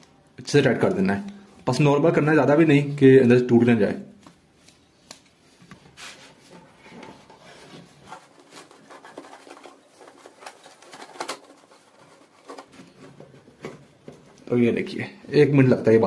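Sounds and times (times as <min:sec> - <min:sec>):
rubber hose being handled: 0:04.2 - 0:14.5.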